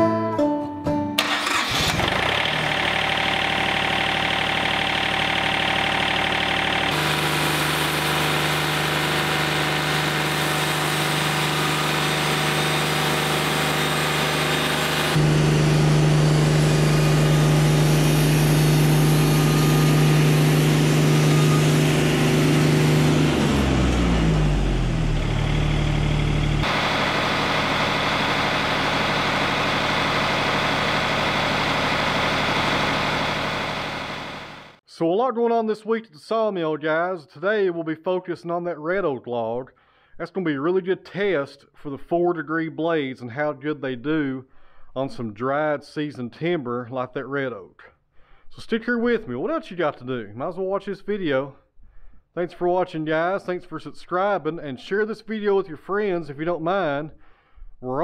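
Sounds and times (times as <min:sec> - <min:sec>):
sawmill engine running: 0:01.2 - 0:34.8.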